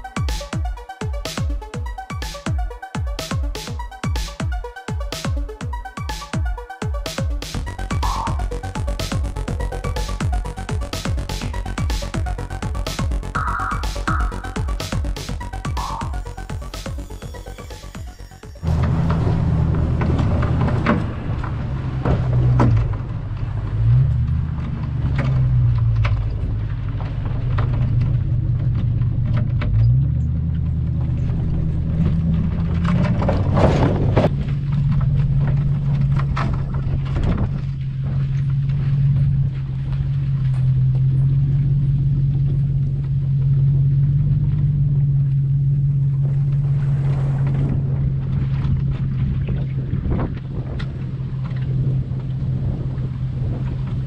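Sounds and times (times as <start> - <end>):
engine droning: 0.0 - 54.0.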